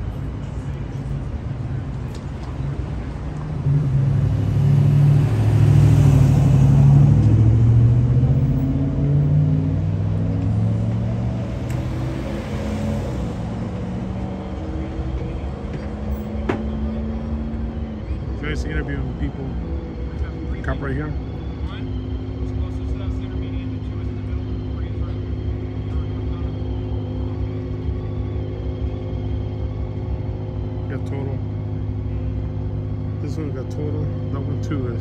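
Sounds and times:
street traffic hum: 0.0 - 35.0
vehicle engine passing by: 2.8 - 35.0.

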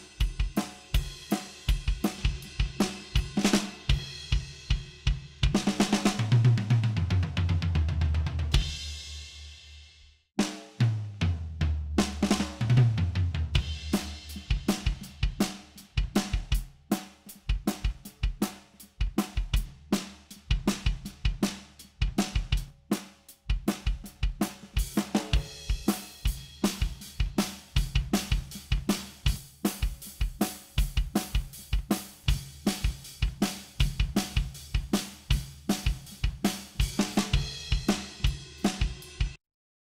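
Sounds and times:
drum groove kick snare hi-hat: 0.0 - 9.8, 10.4 - 39.4
tom fill: 10.4 - 39.4.

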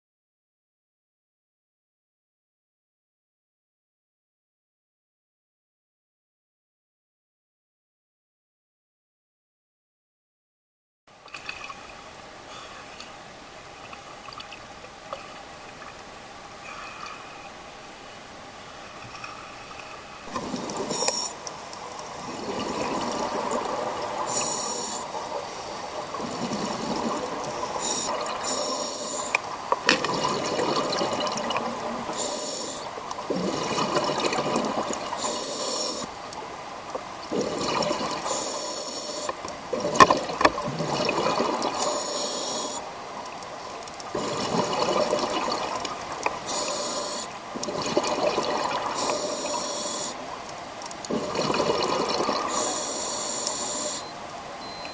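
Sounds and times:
exhaled air bubbles rushing: 20.2 - 28.5, 29.8 - 36.0, 37.2 - 38.4, 39.7 - 41.9, 44.1 - 50.1, 51.0 - 54.1
regulator inhalation hiss: 20.8 - 21.4, 24.3 - 25.8, 27.8 - 29.4, 32.1 - 33.0, 35.2 - 36.1, 38.3 - 39.4, 41.8 - 42.9, 46.4 - 47.4, 49.0 - 50.2, 52.4 - 54.1.

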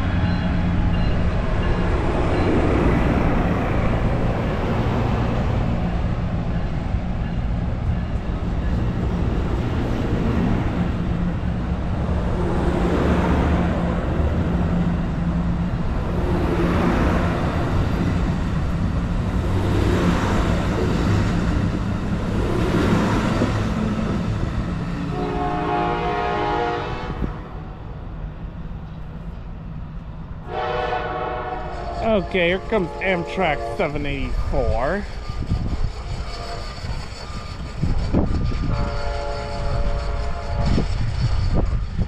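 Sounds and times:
train cars rolling past: 0.0 - 42.0
distant train horn: 25.0 - 27.6, 30.4 - 41.9.

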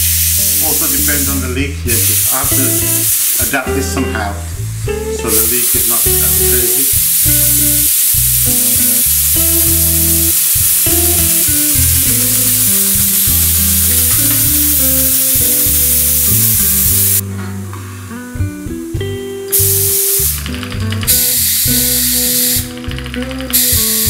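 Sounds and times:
compressed air hissing: 0.0 - 17.2, 19.5 - 24.0
guitar background music: 0.0 - 24.0.

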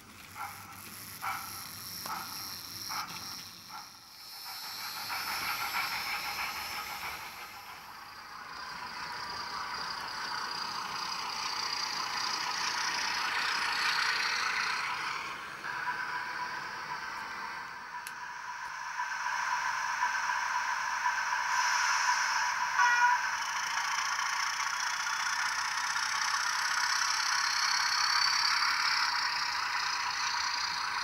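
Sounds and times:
tinny model train steam chuffs: 0.0 - 31.0.

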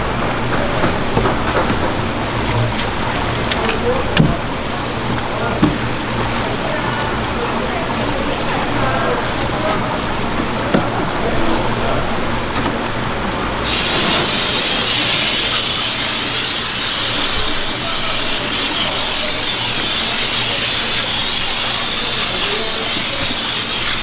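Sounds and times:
water hose spraying: 13.6 - 24.0.

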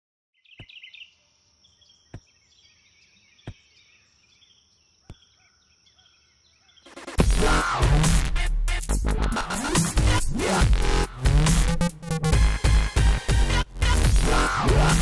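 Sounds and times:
faint birdsong: 0.3 - 7.2.

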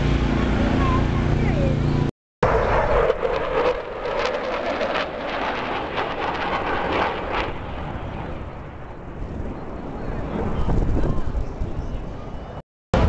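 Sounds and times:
fighter jet flying past: 2.4 - 12.4.

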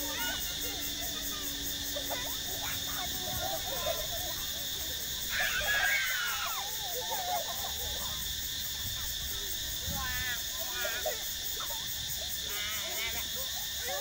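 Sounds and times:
high-pitched voices squealing: 0.0 - 7.8
high insect buzz: 0.0 - 14.0.

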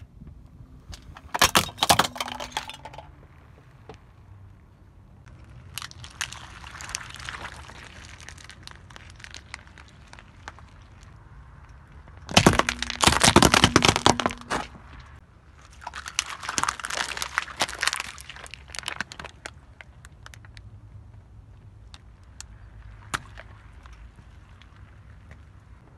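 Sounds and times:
tyre crushing objects on asphalt: 0.9 - 3.1, 11.8 - 15.2.

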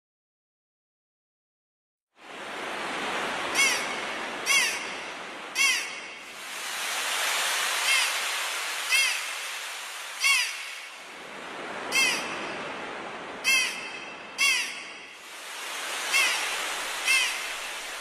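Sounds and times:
waves washing: 2.2 - 18.0
seagulls crying: 3.5 - 6.1, 7.8 - 9.5, 10.1 - 11.0, 11.8 - 12.5, 13.4 - 15.0, 15.9 - 18.0.

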